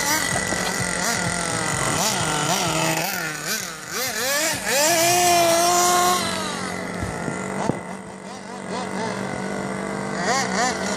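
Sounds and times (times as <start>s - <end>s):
toy car motor revving: 0.0s - 10.9s.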